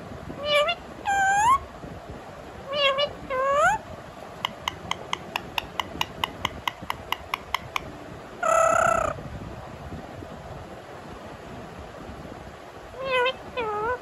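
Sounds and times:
parakeet harsh call: 0:00.4 - 0:01.6, 0:02.7 - 0:03.8, 0:04.4 - 0:07.8, 0:08.4 - 0:09.2
parakeet clicking: 0:04.4 - 0:07.9.

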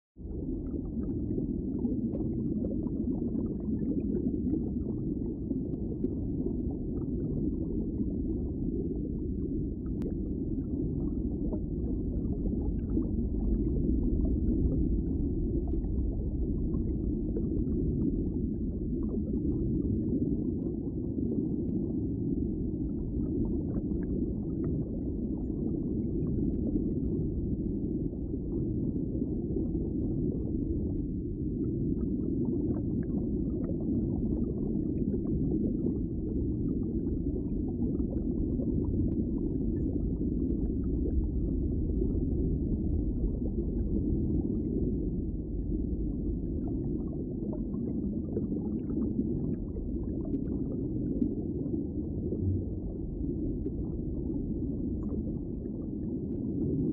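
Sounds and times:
muffled underwater rumble: 0:00.1 - 0:56.9
faint bubbling ticks: 0:00.3 - 0:22.1, 0:22.7 - 0:27.6, 0:28.3 - 0:56.9.

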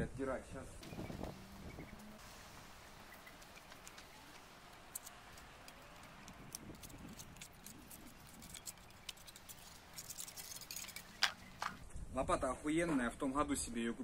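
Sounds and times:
putty knife scraping spade: 0:06.5 - 0:11.8.

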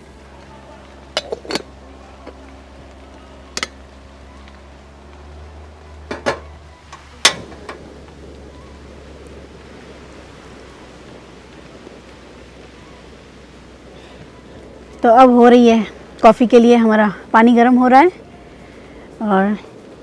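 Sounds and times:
low steady hum: 0:00.0 - 0:20.0
soft steady hiss: 0:00.0 - 0:20.0
metal kettle clicks and clatters: 0:01.2 - 0:02.4.

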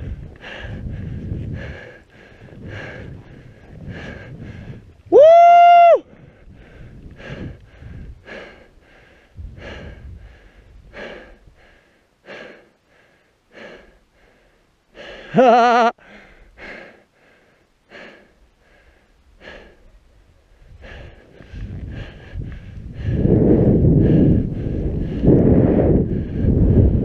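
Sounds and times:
person panting hard: 0:00.0 - 0:04.9, 0:06.0 - 0:27.0
person whooping: 0:05.1 - 0:06.1, 0:15.3 - 0:16.0.

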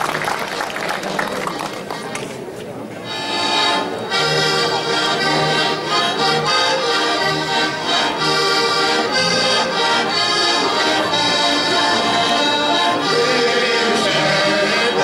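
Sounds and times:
button accordions playing folk tune: 0:03.0 - 0:15.0.

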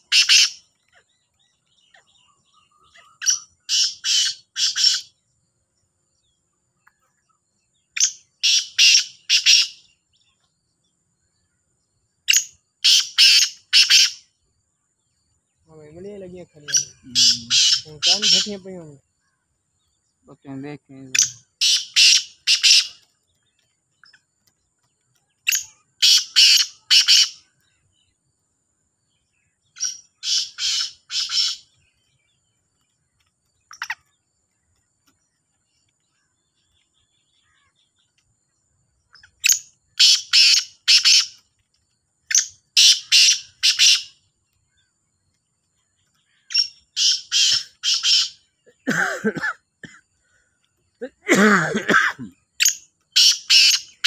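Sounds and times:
birds calling harsh grating notes: 0:00.0 - 0:05.3, 0:06.8 - 0:10.3, 0:12.3 - 0:14.4, 0:15.8 - 0:28.2, 0:29.1 - 0:38.2, 0:38.9 - 0:41.6, 0:42.2 - 0:44.9, 0:45.8 - 0:54.0.

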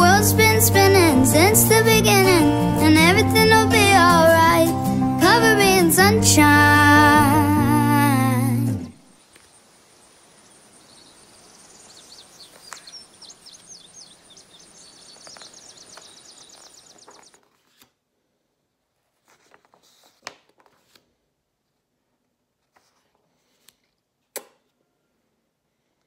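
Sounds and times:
background hiss: 0:00.0 - 0:17.2
bird chirping: 0:09.1 - 0:17.4.

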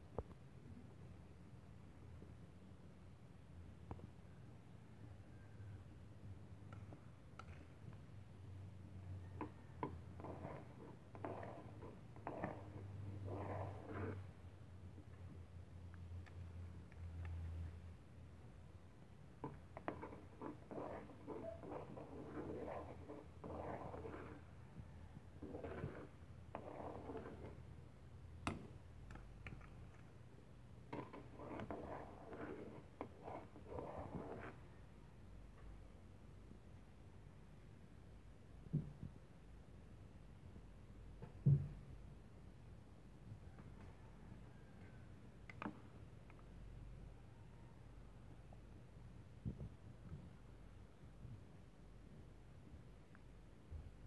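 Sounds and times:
spoon stirring porridge in a pot: 0:09.2 - 0:15.3, 0:19.2 - 0:34.7
spoon scraping a pot: 0:09.4 - 0:14.3, 0:19.4 - 0:24.5, 0:25.4 - 0:27.7, 0:30.9 - 0:34.6.

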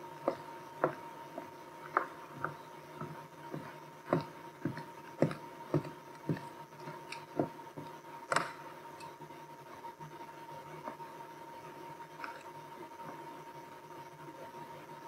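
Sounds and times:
faint steady tone: 0:00.0 - 0:15.0
footsteps on hardwood floor: 0:00.2 - 0:08.0.

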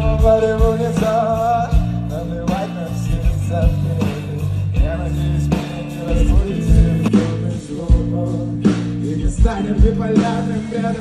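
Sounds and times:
live pop-rock band: 0:00.0 - 0:11.0
male lead vocal: 0:00.0 - 0:11.0
sustained bass notes: 0:00.0 - 0:11.0.

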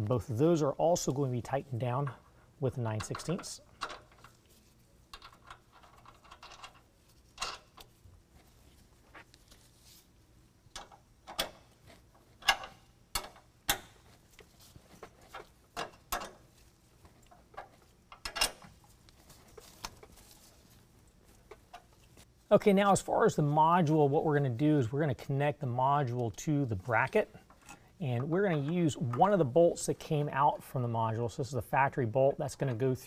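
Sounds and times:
wrench and nuts clinking on metal: 0:05.1 - 0:07.9, 0:17.2 - 0:18.8.

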